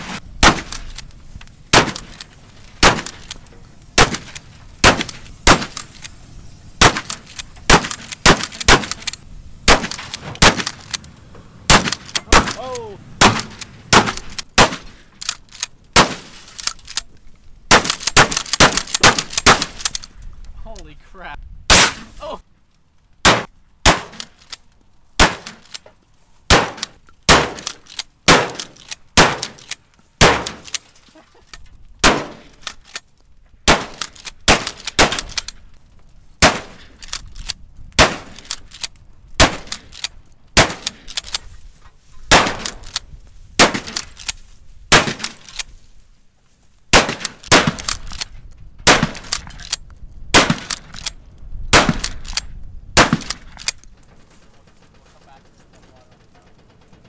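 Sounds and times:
gunshots: 0:00.0 - 0:01.0, 0:01.7 - 0:06.1, 0:06.8 - 0:11.0, 0:11.6 - 0:17.0, 0:17.7 - 0:20.0, 0:21.7 - 0:22.2, 0:23.2 - 0:24.6, 0:25.2 - 0:25.8, 0:26.5 - 0:30.8, 0:32.0 - 0:32.9, 0:33.7 - 0:35.5, 0:36.4 - 0:37.1, 0:38.0 - 0:38.8, 0:39.4 - 0:41.4, 0:42.3 - 0:43.0, 0:43.6 - 0:44.3, 0:44.9 - 0:45.7, 0:46.9 - 0:51.1, 0:51.7 - 0:52.4, 0:53.0 - 0:53.8.

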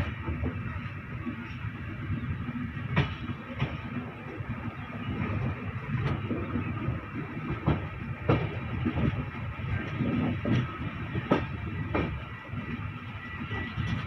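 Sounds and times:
train coach rumbling: 0:00.0 - 0:14.0
wheels clacking over rail joints: 0:02.8 - 0:12.8.

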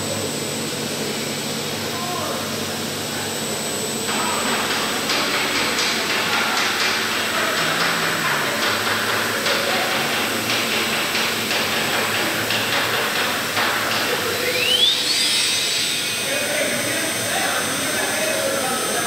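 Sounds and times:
machine mechanical hiss: 0:04.1 - 0:19.0
rising motor whine: 0:14.3 - 0:19.0.

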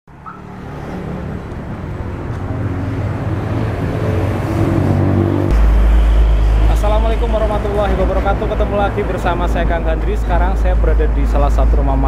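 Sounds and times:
vehicle engine running: 0:02.7 - 0:10.0
deep rumble: 0:03.0 - 0:11.3.

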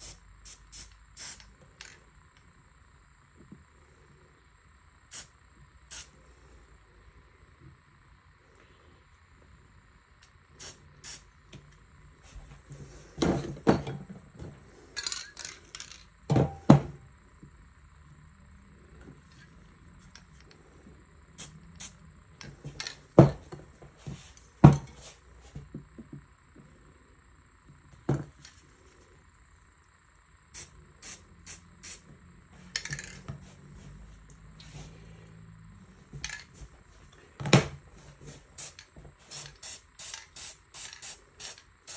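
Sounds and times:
short hissing sounds: 0:00.0 - 0:02.0, 0:05.1 - 0:06.7, 0:10.2 - 0:11.4, 0:21.4 - 0:22.0, 0:30.5 - 0:33.8, 0:38.5 - 0:41.9
spray paint can spraying: 0:00.0 - 0:02.0, 0:05.1 - 0:05.3, 0:05.9 - 0:06.1, 0:10.6 - 0:11.3, 0:30.5 - 0:32.0, 0:38.6 - 0:41.9.

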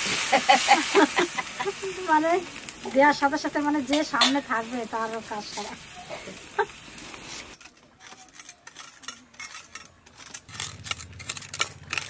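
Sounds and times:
steel bowls and utensils clinking: 0:02.9 - 0:05.7, 0:06.6 - 0:12.0.

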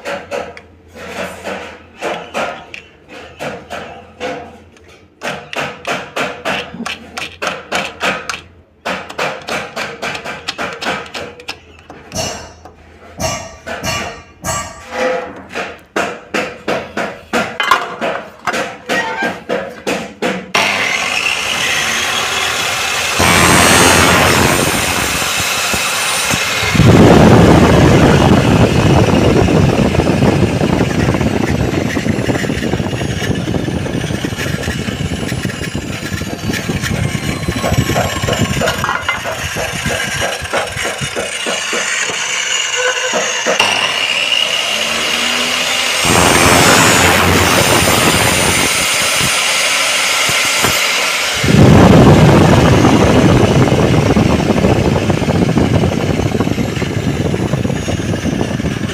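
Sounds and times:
mitre saw motor whine: 0:20.6 - 0:58.9.

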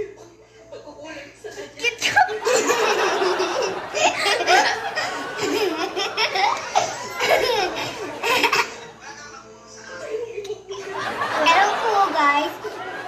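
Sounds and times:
children laughing and squealing: 0:02.1 - 0:09.4, 0:10.7 - 0:13.0.

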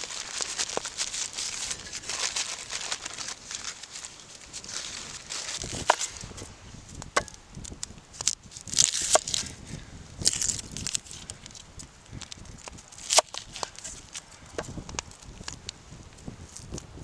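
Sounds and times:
paper wrapping crinkling: 0:00.0 - 0:06.5, 0:07.6 - 0:09.6, 0:10.2 - 0:15.6
dry onion skin crackling: 0:00.0 - 0:16.9.

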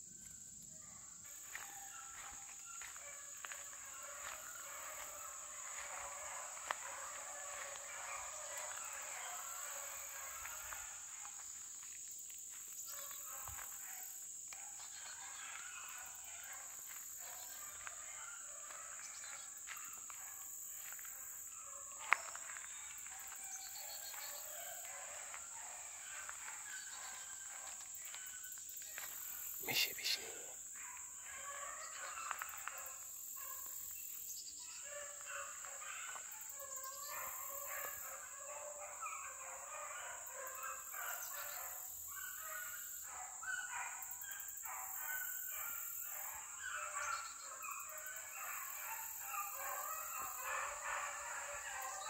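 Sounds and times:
footsteps on gravel: 0:01.3 - 0:08.8, 0:20.8 - 0:21.1, 0:28.8 - 0:29.2.

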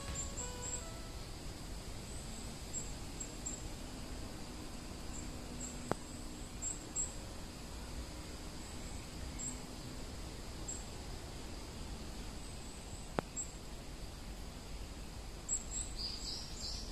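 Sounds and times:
short high chirps: 0:00.0 - 0:01.2
soft background hiss: 0:00.0 - 0:16.9.

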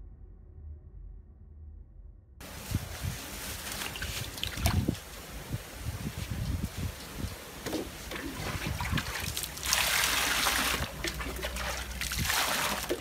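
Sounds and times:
water dripping and splashing: 0:02.7 - 0:13.0
water pouring into steel basin: 0:08.1 - 0:13.0.

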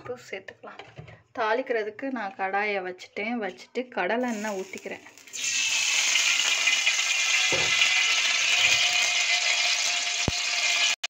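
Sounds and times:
oil hissing in a pan: 0:04.3 - 0:11.0.

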